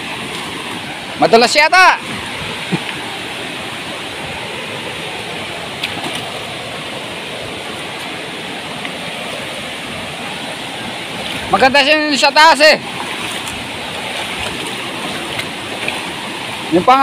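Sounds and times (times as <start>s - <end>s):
waterfall rushing: 0.0s - 17.0s.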